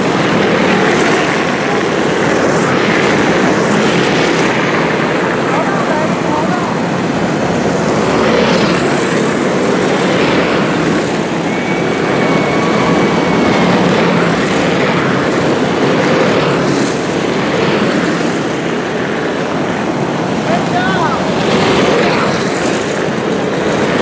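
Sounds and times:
racing kart engines buzzing: 0.0 - 24.0.

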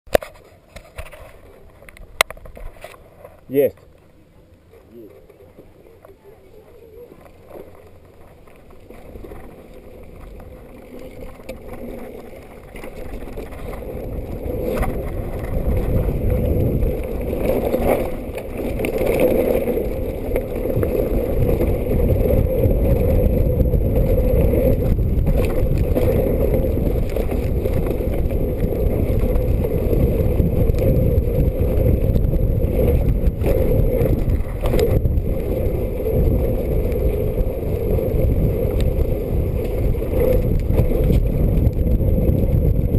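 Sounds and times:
tyres rumbling on dirt trail: 0.1 - 42.9
wind rushing on microphone: 13.0 - 42.9.

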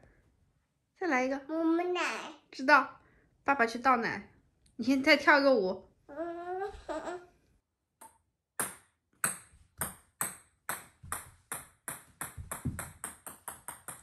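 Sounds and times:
ping-pong ball bouncing on floor: 8.0 - 14.0.

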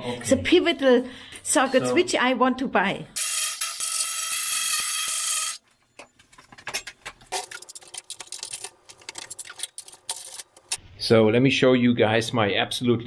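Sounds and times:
power tool whirring: 3.2 - 5.6
tools and metal parts handled: 5.6 - 10.8.

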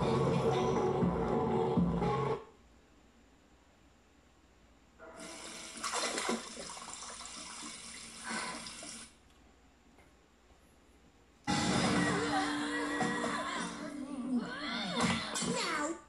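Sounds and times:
tap water running on tv: 5.2 - 9.2.

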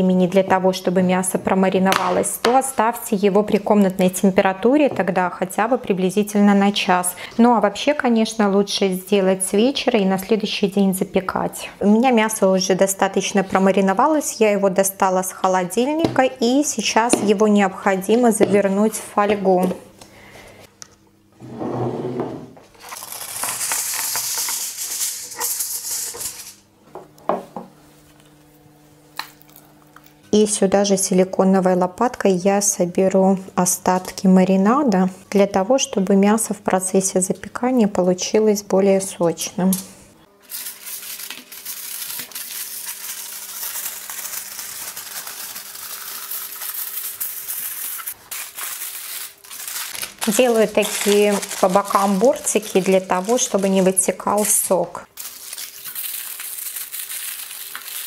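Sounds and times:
kitchen foil crinkling: 22.7 - 26.6, 40.4 - 58.0.

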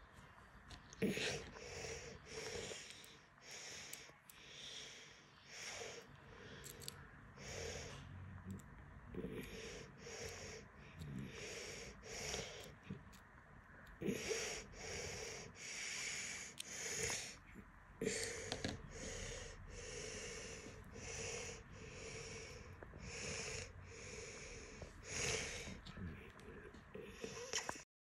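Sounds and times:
person breathing through the nose: 1.0 - 8.2, 9.2 - 13.0, 14.0 - 17.4, 18.0 - 25.9.

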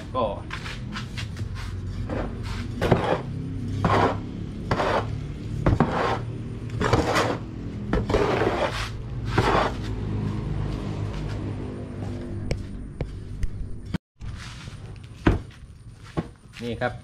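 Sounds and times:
shovel scraping dry mix: 0.6 - 10.0.

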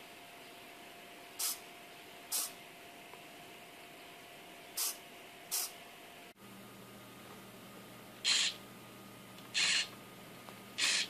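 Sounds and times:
micro servo whirring: 8.3 - 8.6, 9.6 - 9.9, 10.8 - 11.0.

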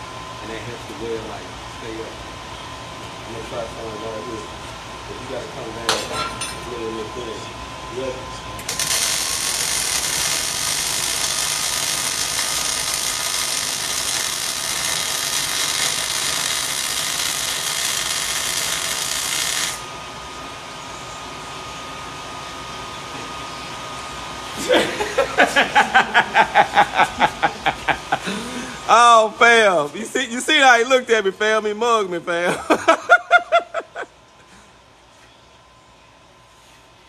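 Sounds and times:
welding arc crackling and hissing: 8.6 - 20.0
man laughing: 24.6 - 28.9, 32.4 - 34.2.

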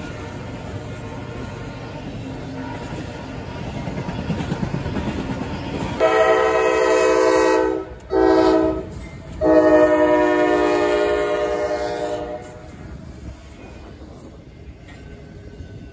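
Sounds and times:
freight train wheels on rail: 0.0 - 15.9
locomotive air horn blasts: 6.0 - 12.7.

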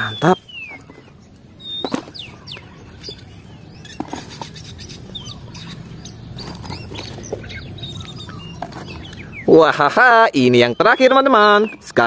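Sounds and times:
birds cheeping: 0.0 - 12.0
plastic toys dropped in basket: 1.8 - 2.3.

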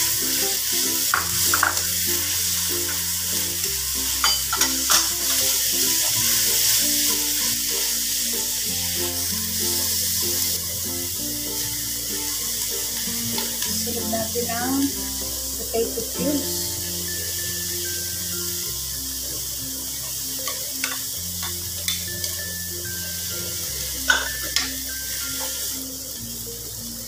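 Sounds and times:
background music with bass: 0.0 - 27.0
meat sizzling in a wok: 0.0 - 27.0.

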